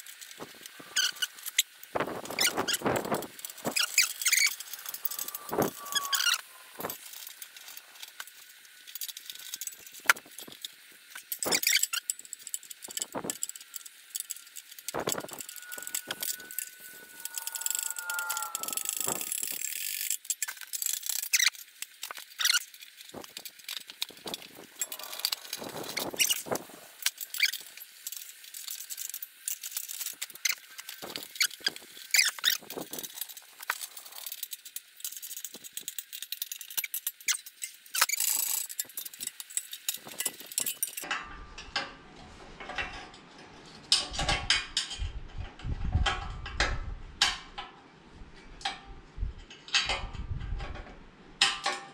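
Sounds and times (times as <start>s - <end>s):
hand tools and fasteners clinking: 0.0s - 41.3s
squeak: 0.7s - 1.6s, 2.2s - 7.0s, 11.4s - 12.1s, 14.2s - 20.6s, 21.2s - 21.6s, 22.4s - 22.7s, 24.8s - 26.5s, 30.4s - 32.7s.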